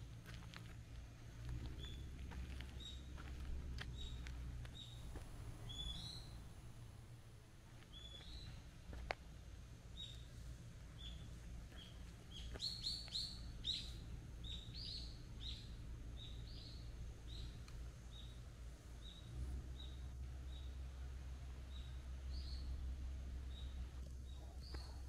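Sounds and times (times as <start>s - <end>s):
small bird chirping: 1.7s - 2.1s, 3.9s - 8.6s, 11.0s - 18.4s, 23.4s - 25.0s.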